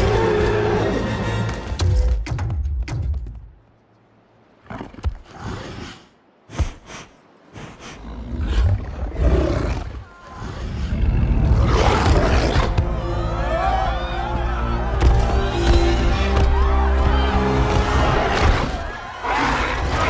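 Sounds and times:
giant wolf growls and roars: 0:07.8 - 0:12.9, 0:18.0 - 0:20.0.

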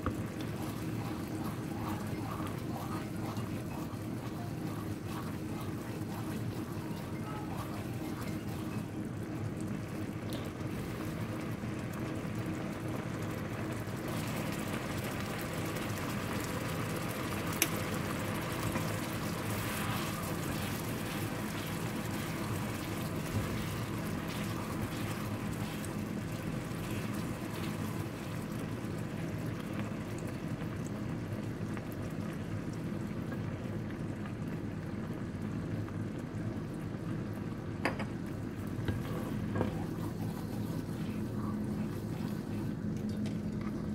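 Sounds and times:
wooden spoon stirring: 0:00.0 - 0:08.9, 0:18.2 - 0:28.5
sauce bubbling in a pan: 0:00.0 - 0:43.9.

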